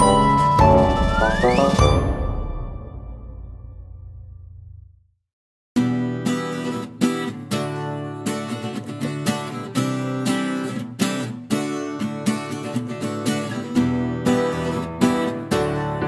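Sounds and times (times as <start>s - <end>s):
strummed acoustic guitar: 5.8s - 16.0s.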